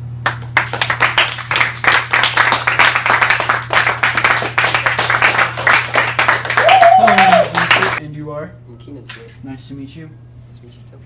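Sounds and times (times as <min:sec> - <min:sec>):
audience applauding: 0:00.2 - 0:08.0.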